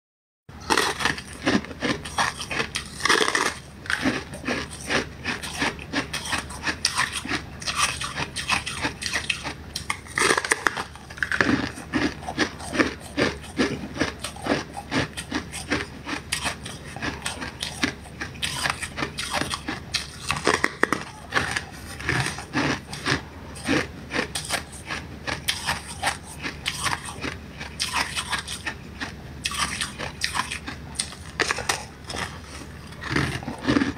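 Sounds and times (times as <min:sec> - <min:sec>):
person chewing ice crunching: 0:00.5 - 0:33.9.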